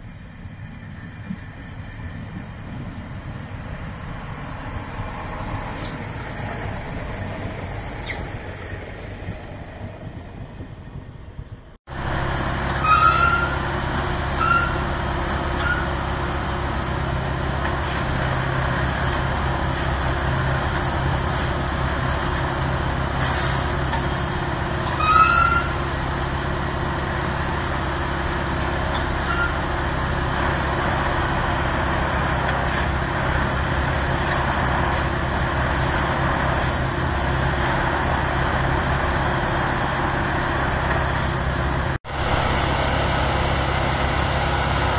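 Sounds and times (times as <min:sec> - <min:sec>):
tamping machine diesel drone: 0:00.0 - 0:44.9
short rising squeals: 0:11.9 - 0:16.2, 0:24.8 - 0:26.2, 0:29.0 - 0:30.0, 0:39.2 - 0:44.9.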